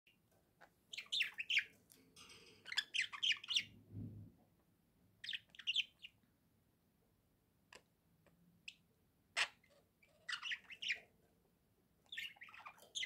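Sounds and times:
budgerigars chirping: 0.6 - 1.8, 2.6 - 3.8, 5.2 - 6.2, 8.6 - 11.2, 12.0 - 13.0.

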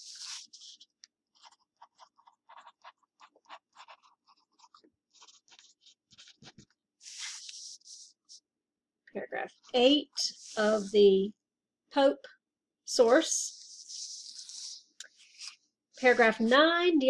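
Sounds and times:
ballpoint pen writing on paper: 0.0 - 8.1.

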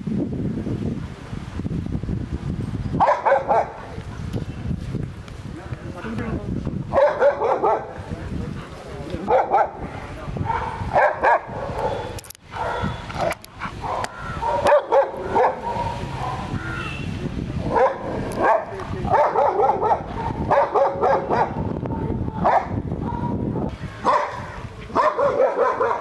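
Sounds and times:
dog barking: 3.0 - 3.9, 6.9 - 8.0, 9.2 - 16.6, 17.7 - 21.6, 22.4 - 23.4, 24.0 - 26.0.

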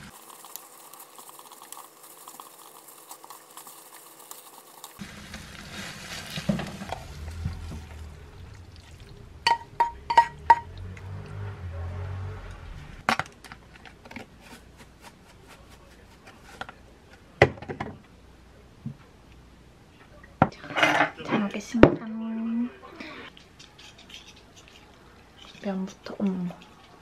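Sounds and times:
spatula stirring pasta in pan: 0.0 - 8.0
low hum: 6.7 - 13.0
utensil clinking on cookware: 9.5 - 10.7.

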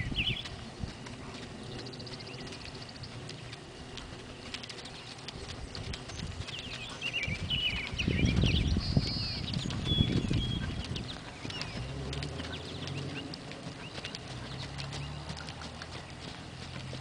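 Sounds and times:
birds chirping: 0.0 - 17.0
horse hoofbeats on dirt: 0.0 - 17.0.

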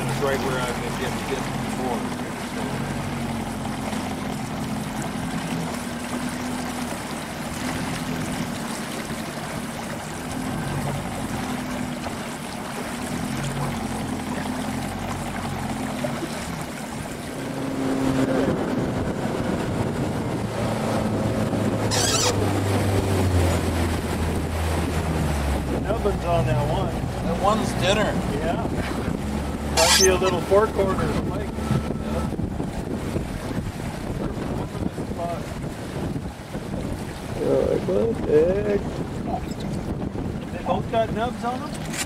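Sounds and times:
river water rushing: 0.0 - 19.3, 20.5 - 28.6, 29.2 - 34.2
motorboat engine running: 0.0 - 42.0.

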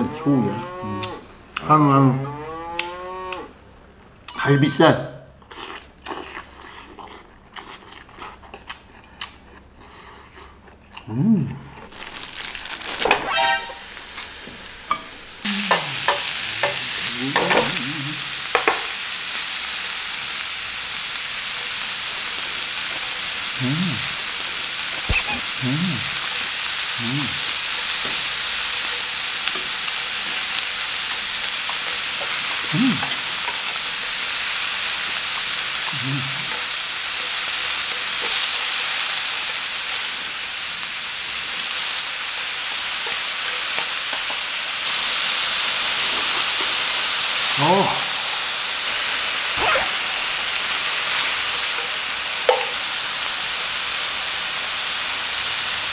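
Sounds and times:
meat sizzling in a frying pan: 11.9 - 55.9
tongs stirring meat: 15.7 - 17.8.

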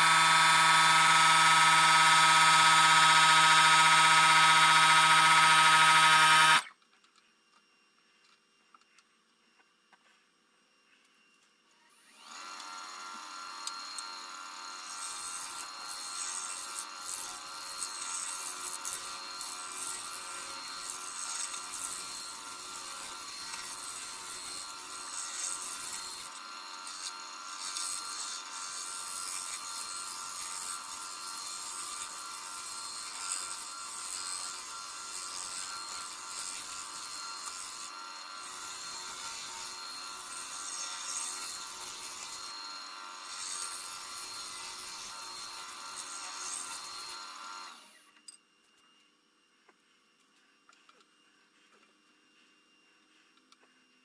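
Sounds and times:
tool scraping spinning wood: 0.0 - 6.7, 11.9 - 48.0
wood lathe motor humming: 0.0 - 6.7, 11.9 - 48.0.

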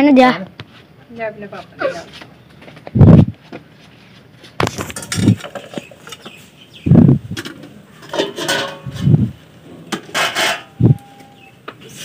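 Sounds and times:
steel utensils clinking: 8.0 - 9.1, 9.9 - 11.3.

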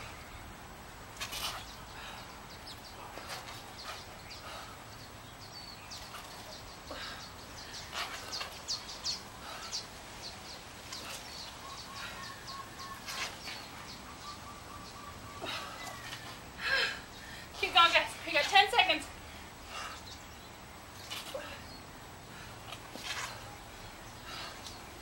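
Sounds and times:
birds chirping: 0.0 - 25.0
outdoor background hiss: 0.0 - 25.0.

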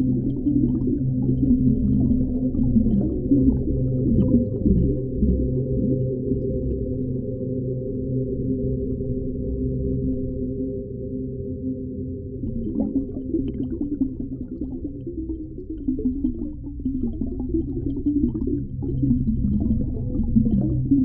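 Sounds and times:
bubbly warbling water: 0.0 - 7.0, 12.4 - 21.0
underwater low rumble: 0.0 - 21.0.

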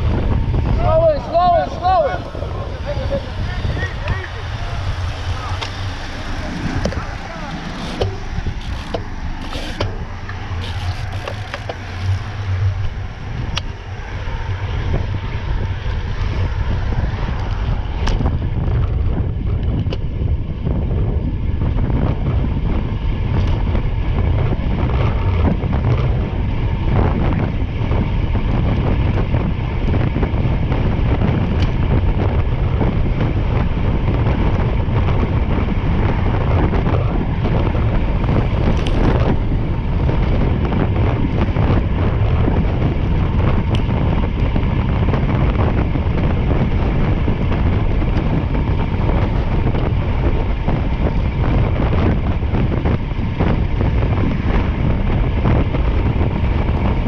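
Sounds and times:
vehicle engine running: 0.0 - 57.0
wind rushing over microphone: 0.0 - 57.0.

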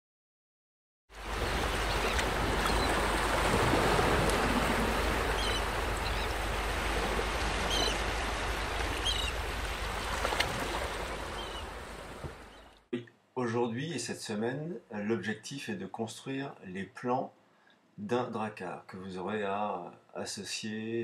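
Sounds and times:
sea waves and surf: 1.1 - 12.9.

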